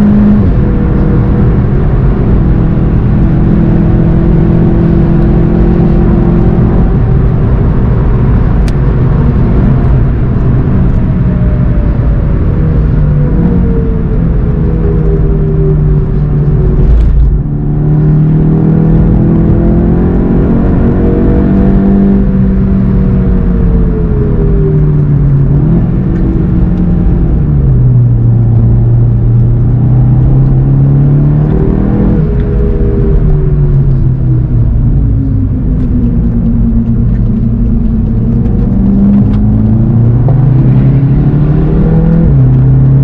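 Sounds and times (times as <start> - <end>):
car engine at speed: 0.0 - 43.0.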